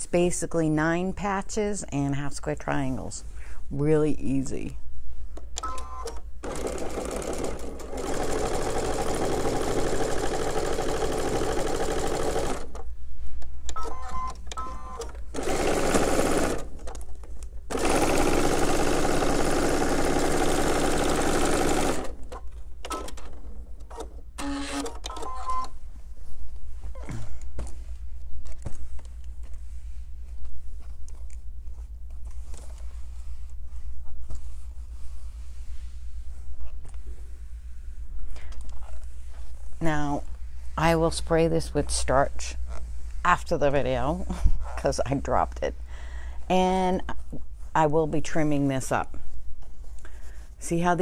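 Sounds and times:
sewing machine stitching: 0:05.7 - 0:12.8, 0:14.8 - 0:17.0, 0:17.7 - 0:23.3.

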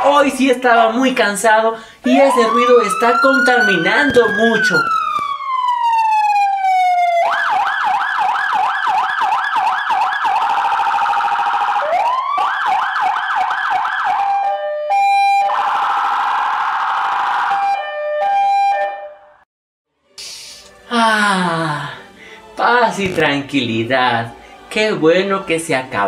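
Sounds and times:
police siren wailing and yelping: 0:02.0 - 0:19.4.

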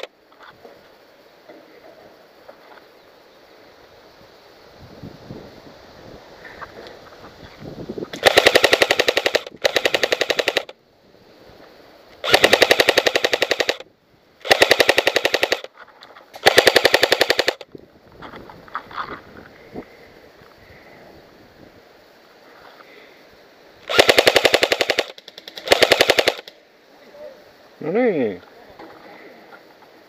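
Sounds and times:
airsoft rifle full-auto bursts: 0:08.2 - 0:10.8, 0:12.2 - 0:15.7, 0:16.4 - 0:17.7, 0:23.9 - 0:26.6.

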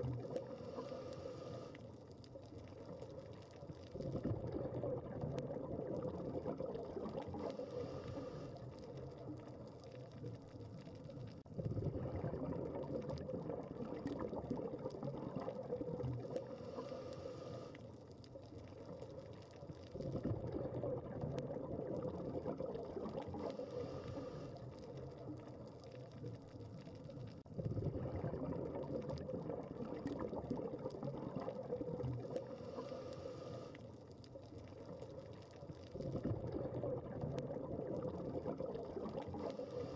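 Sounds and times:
regulator inhale hiss: 0:00.4 - 0:01.8, 0:07.4 - 0:08.8, 0:16.4 - 0:17.8, 0:23.5 - 0:24.7, 0:32.4 - 0:33.8
exhaled bubbles rushing: 0:02.6 - 0:16.9, 0:18.6 - 0:33.4, 0:34.3 - 0:39.9.

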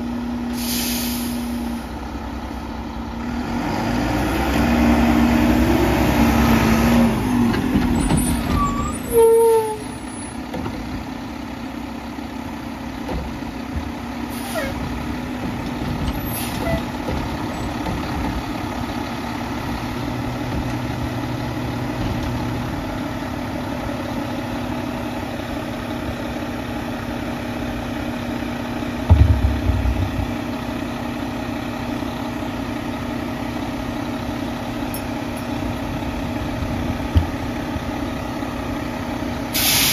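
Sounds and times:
brake squeal: 0:07.1 - 0:10.5, 0:14.3 - 0:15.0, 0:16.0 - 0:17.8
garbage truck engine idling: 0:07.2 - 0:39.9
heavy thump: 0:29.1 - 0:30.4
air-brake release: 0:39.5 - 0:39.9.

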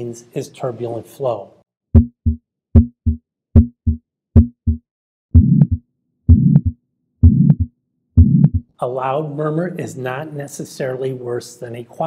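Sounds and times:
heart murmur: 0:02.0 - 0:04.8, 0:05.4 - 0:08.7
heartbeat through stethoscope: 0:02.0 - 0:08.7.

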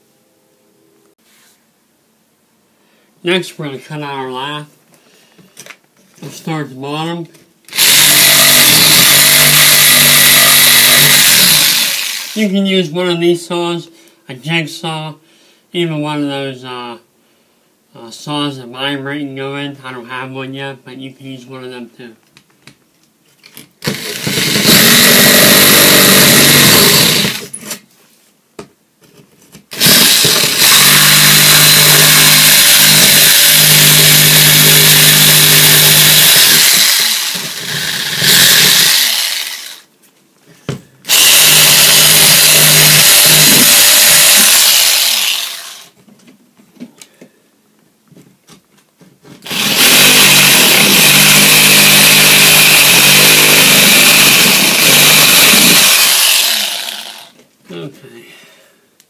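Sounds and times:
power saw cutting wood: 0:07.7 - 0:12.4, 0:23.8 - 0:27.5, 0:29.8 - 0:39.9, 0:41.1 - 0:46.0, 0:49.4 - 0:57.4.

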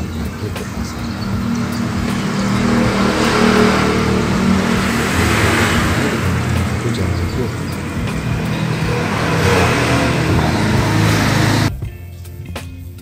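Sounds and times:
motor vehicle passing: 0:00.0 - 0:11.7.

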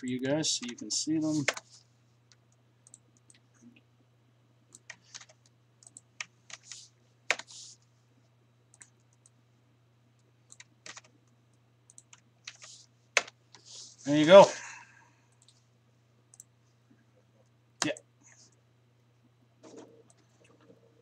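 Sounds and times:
faint low hum: 0:00.0 - 0:21.0
typing on a keyboard: 0:01.4 - 0:01.7, 0:04.7 - 0:06.7, 0:07.3 - 0:07.5, 0:10.5 - 0:11.1, 0:11.9 - 0:13.4.

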